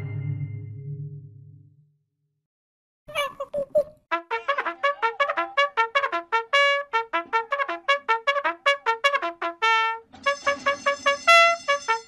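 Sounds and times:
trumpet-like brass music: 4.1 - 12.0.

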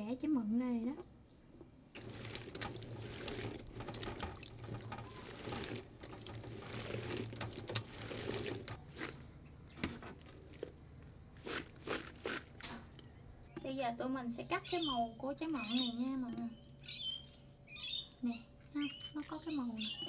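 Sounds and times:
water sloshing and splashing: 1.3 - 12.9.

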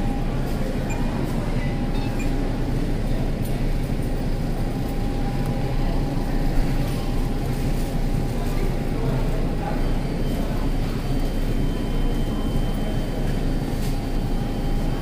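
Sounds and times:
supermarket background rumble: 0.0 - 15.0.

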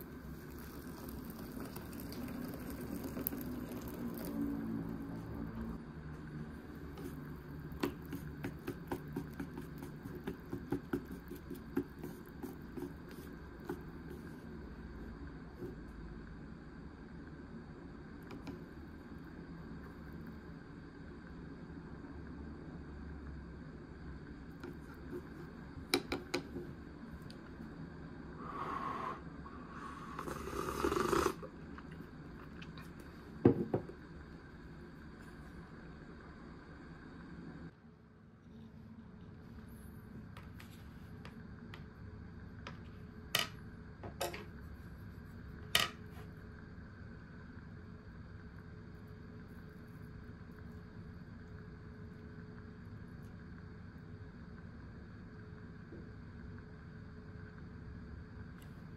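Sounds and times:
bowl set down on wooden table: 33.4 - 33.9.

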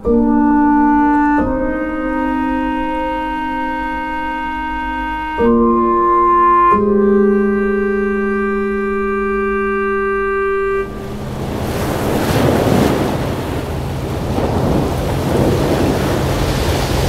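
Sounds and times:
held woodwind-like note: 0.0 - 14.0
low steady hum: 0.0 - 17.0
wind: 5.8 - 17.0
sea waves: 7.0 - 17.0.

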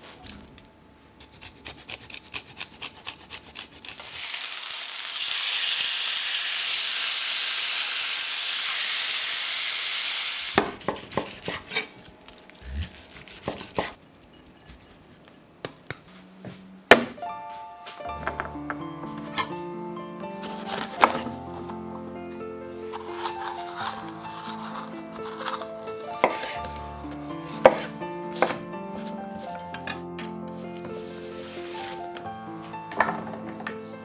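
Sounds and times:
meat sizzling in a pan: 4.0 - 10.6.

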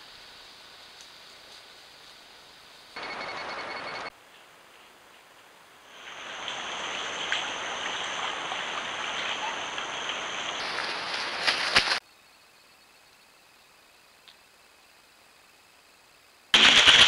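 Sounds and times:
high steady whine: 0.0 - 4.9.

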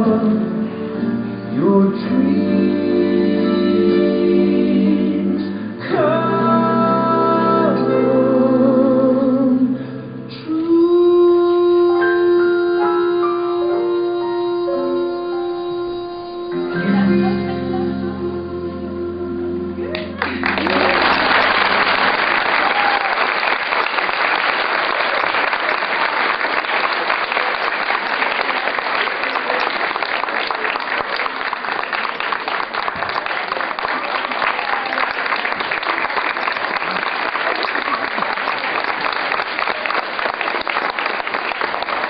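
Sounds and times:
audience applauding: 19.9 - 42.0.

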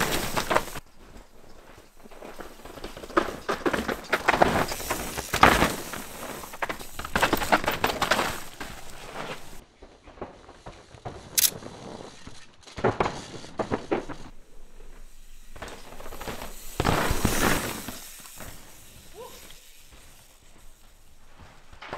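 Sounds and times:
bike knocking and rattling: 0.0 - 21.9
bike tyres crunching leaves: 0.0 - 21.9.

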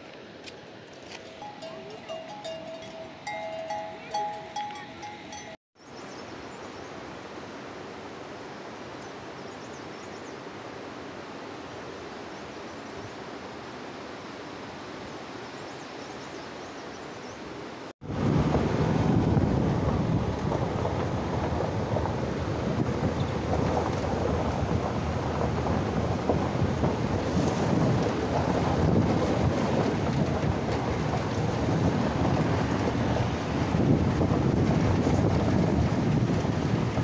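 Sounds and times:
wind buffeting microphone: 1.2 - 5.6, 18.0 - 37.0
vehicle rumbling on rough road: 18.1 - 37.0.

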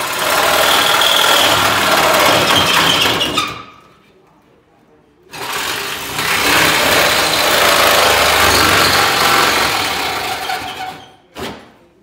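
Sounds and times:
power tool buzzing on sheet steel: 6.0 - 10.2.

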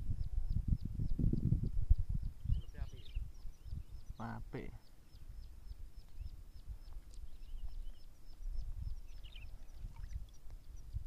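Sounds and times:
low rumble on microphone: 0.0 - 4.2
bird twitter: 2.2 - 11.0
small bird calling: 2.2 - 11.0.

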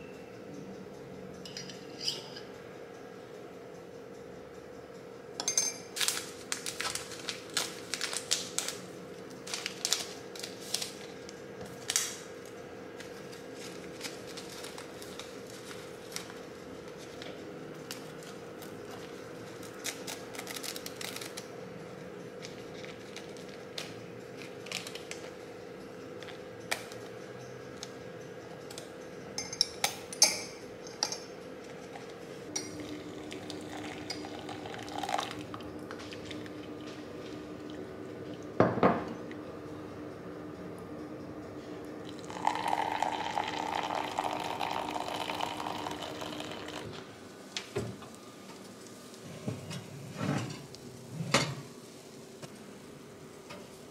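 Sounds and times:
faint hum: 0.0 - 53.9
paper packet handling clicks: 6.0 - 8.8, 9.4 - 11.1, 19.7 - 21.5
teaspoon clinking against mug: 42.3 - 46.8.

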